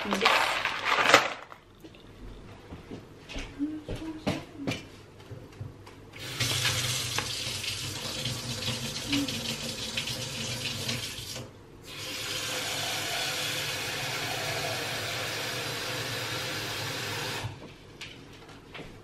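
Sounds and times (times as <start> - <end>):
tap water running into pot: 6.2 - 17.4.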